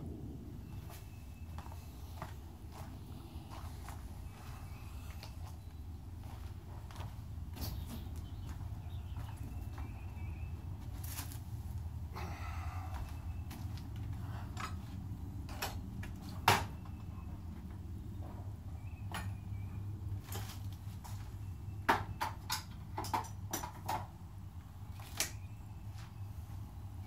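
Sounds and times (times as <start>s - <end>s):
steady low hum: 0.0s - 21.9s
sharp knocks and clicks: 21.9s - 24.1s.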